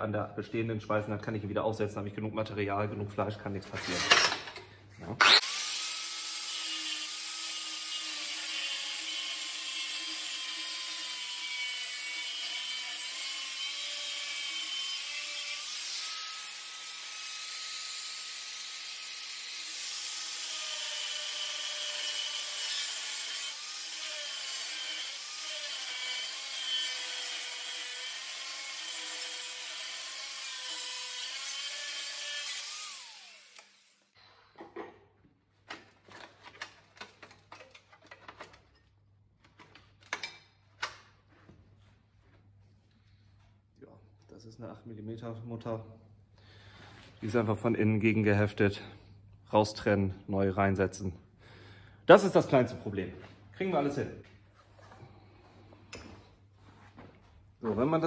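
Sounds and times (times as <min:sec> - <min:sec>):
angle grinder cutting metal: 0:03.7 - 0:04.5, 0:05.2 - 0:34.2.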